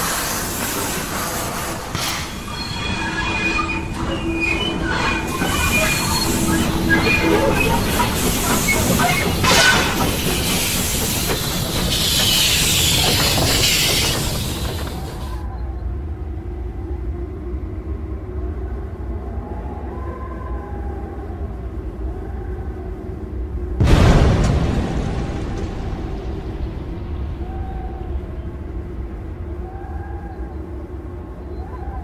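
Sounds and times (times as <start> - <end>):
steam hissing: 0.0 - 4.1, 4.7 - 15.4
train wheels squealing: 0.0 - 16.0
train wagons rumbling and clanking: 0.0 - 19.3, 22.8 - 32.0.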